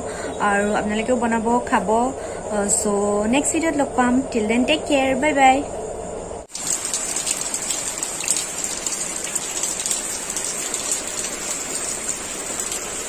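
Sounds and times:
rain falling on grass: 6.5 - 13.0.

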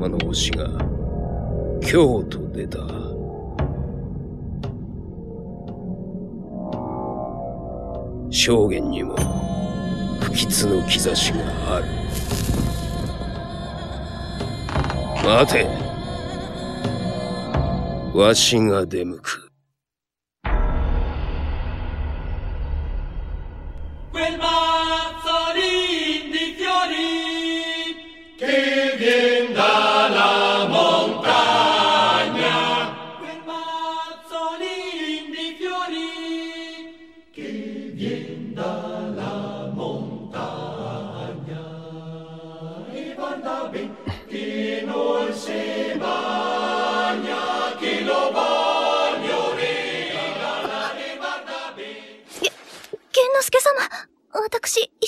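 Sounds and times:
chant-like singing: 8.9 - 18.6, 24.0 - 52.5.

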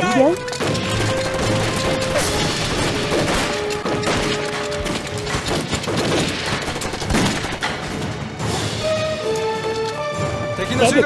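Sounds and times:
dramatic background music: 0.0 - 11.0
crashing impacts: 0.4 - 8.9
machine-gun fire: 0.5 - 8.6.

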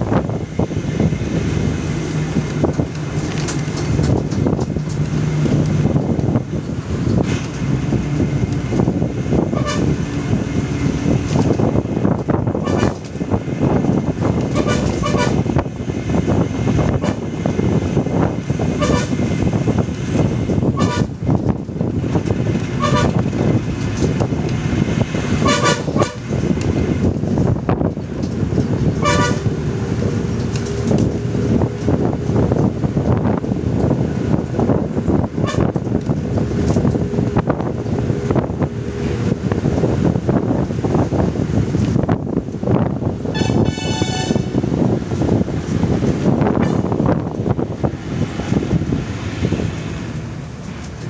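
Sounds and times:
road and wind noise: 0.0 - 51.0
car horn honking: 9.5 - 9.9, 14.5 - 15.4, 18.8 - 19.2, 22.8 - 23.2, 25.4 - 26.2, 29.0 - 29.5, 43.3 - 44.6.

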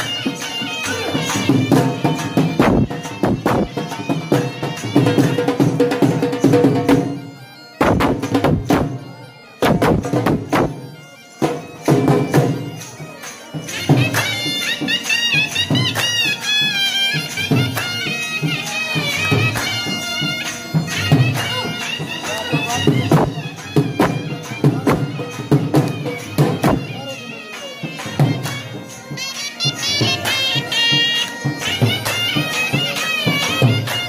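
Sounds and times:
drum beats: 0.0 - 34.0
reedy wind instrument melody: 0.0 - 34.0.

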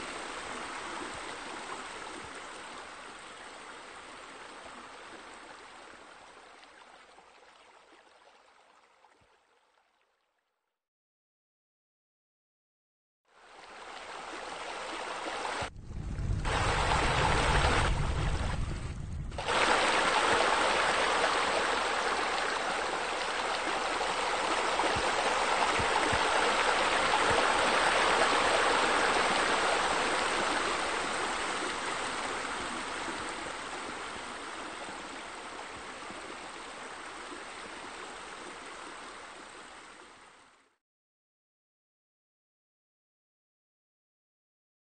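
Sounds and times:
running water splashing: 13.6 - 40.1
deep rumble: 15.7 - 19.4.

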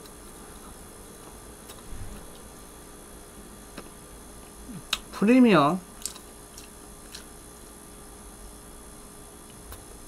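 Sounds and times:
electrical hum and hiss: 0.0 - 10.0.

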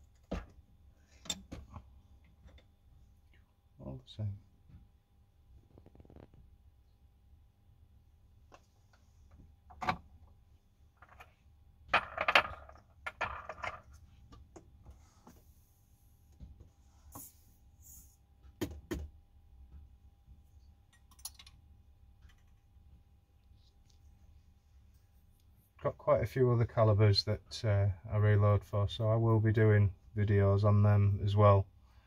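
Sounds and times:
clicks and knocks of metal objects: 1.2 - 1.8.

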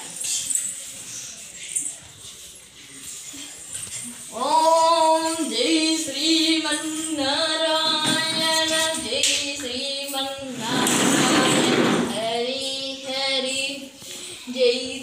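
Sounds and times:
child singing a devotional chant: 4.3 - 15.0.

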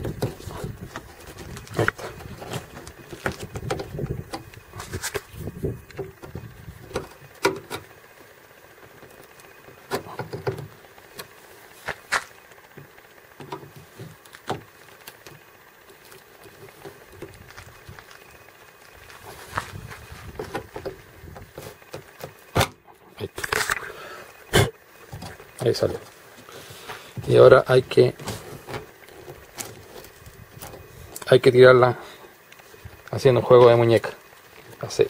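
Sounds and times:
sharp clicks and light knocks: 0.0 - 7.9, 8.8 - 19.1
low rumble of handling: 0.0 - 35.0.

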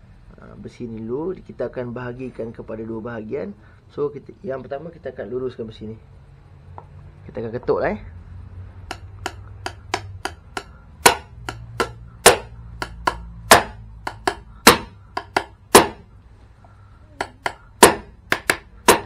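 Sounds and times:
hammer striking steel rod: 8.8 - 16.1, 17.2 - 19.0.

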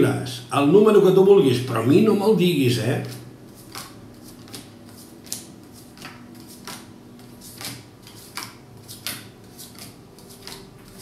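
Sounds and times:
cards slapping on wooden table: 3.6 - 11.0.

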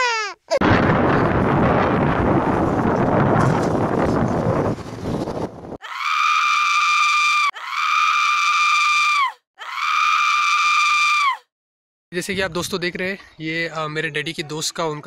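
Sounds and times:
wind buffeting microphone: 0.6 - 5.8
high-pitched scream: 5.8 - 11.5.

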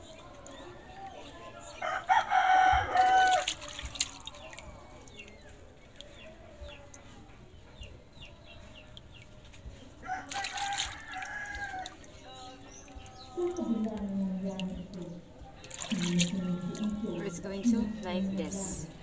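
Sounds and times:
rooster crowing: 1.7 - 3.5, 10.0 - 12.0.

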